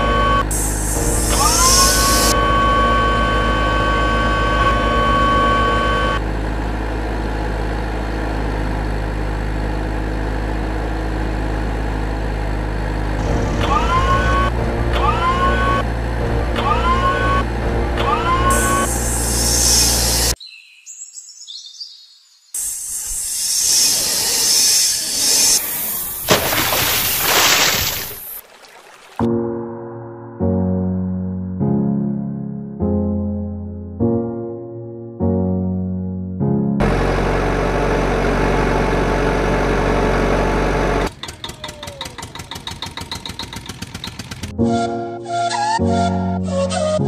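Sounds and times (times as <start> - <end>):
low engine rumble: 0.0 - 20.4, 36.8 - 44.9
hiss: 18.8 - 20.3, 22.6 - 26.2
quiet engine puttering: 36.8 - 44.6.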